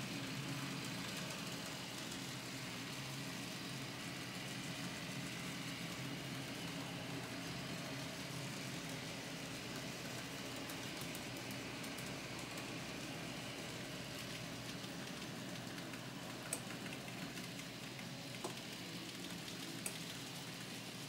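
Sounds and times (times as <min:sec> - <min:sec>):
model trains mechanical hum: 0:00.0 - 0:21.0
faint clicks: 0:14.7 - 0:20.2.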